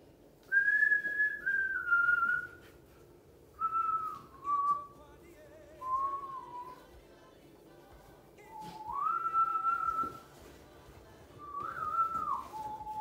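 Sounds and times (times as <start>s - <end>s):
person whistling a slow tune: 0.4s - 2.8s, 3.6s - 5.0s, 5.8s - 6.9s, 8.4s - 10.3s, 11.4s - 13.0s.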